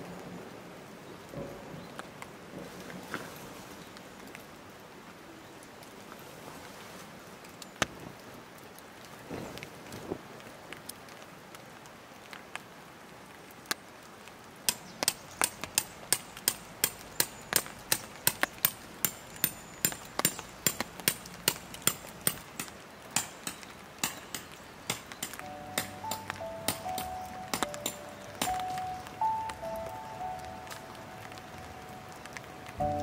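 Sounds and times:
hammer striking tent peg: 0:14.7 - 0:28.8.

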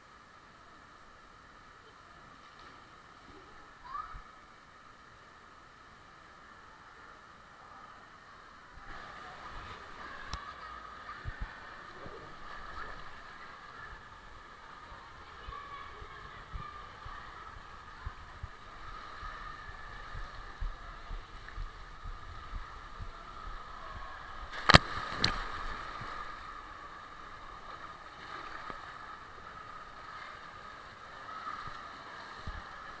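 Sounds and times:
water sloshing and running: 0:08.9 - 0:33.0
sharp splashes: 0:24.5 - 0:26.4.

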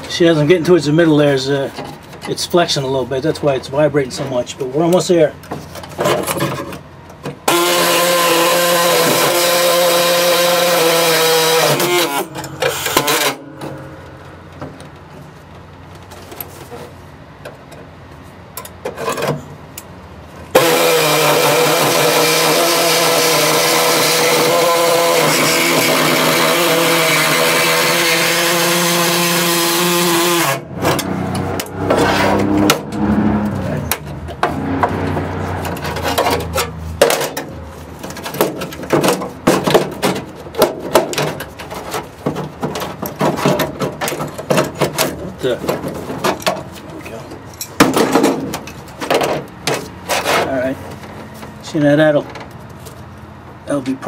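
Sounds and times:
pneumatic saw cutting sheet steel: 0:07.4 - 0:14.0, 0:20.5 - 0:37.6.

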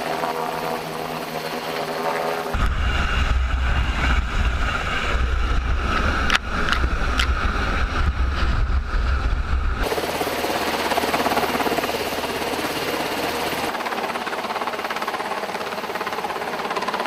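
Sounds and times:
helicopter rotor hovering: 0:00.0 - 0:17.0.

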